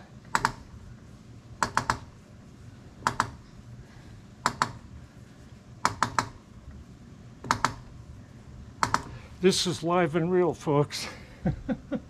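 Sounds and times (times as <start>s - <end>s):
sharp metallic clicks: 0.3s - 0.6s, 1.6s - 2.1s, 3.0s - 3.4s, 4.4s - 4.8s, 5.8s - 6.4s, 7.4s - 7.9s, 8.8s - 9.1s.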